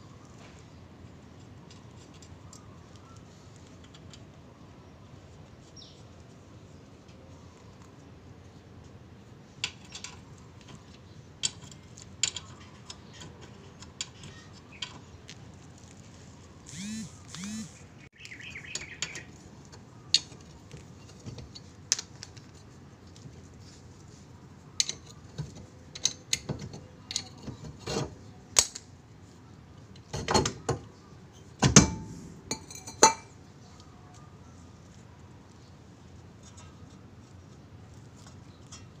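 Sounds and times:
metallic clanks and knocks: 31.6 - 33.3.

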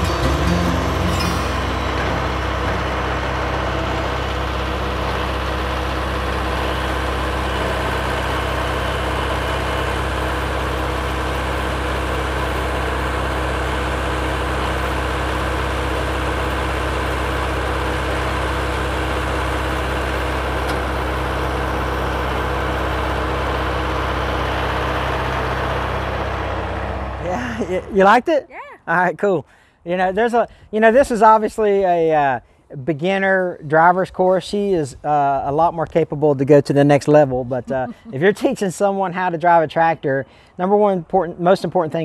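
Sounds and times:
tractor diesel engine idling: 0.0 - 28.2.

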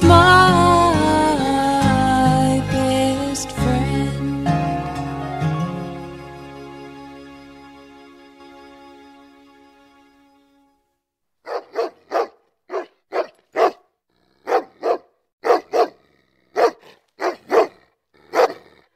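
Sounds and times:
dog barking: 11.4 - 18.8.

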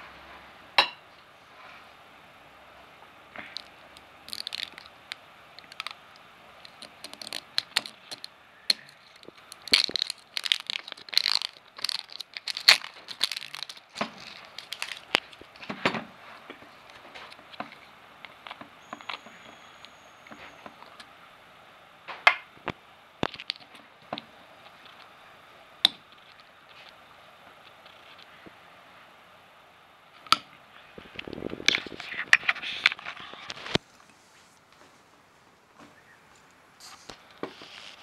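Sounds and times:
plastic shrink-wrap crinkling and snapping: 3.4 - 19.9, 22.6 - 23.9, 31.0 - 34.8, 36.8 - 38.0.

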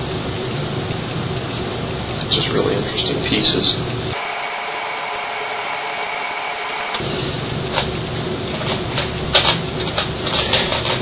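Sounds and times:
room noise hiss: 0.0 - 11.0.

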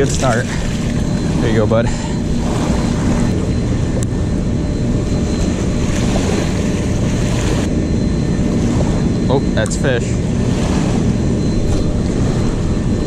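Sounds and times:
small waves lapping on riverbank: 0.0 - 3.5, 5.3 - 7.7, 10.3 - 12.6
wind buffeting microphone: 0.0 - 13.0.

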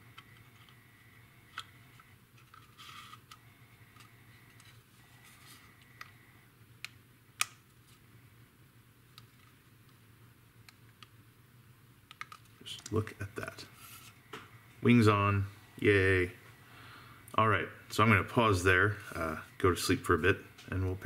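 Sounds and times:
plastic parts clicking: 12.1 - 13.0.

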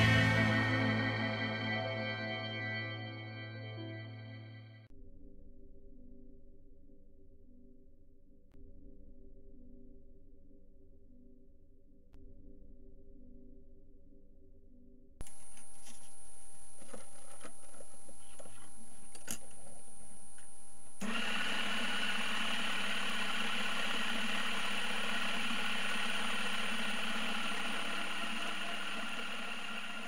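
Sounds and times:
belt-driven lathe running: 21.0 - 30.0.

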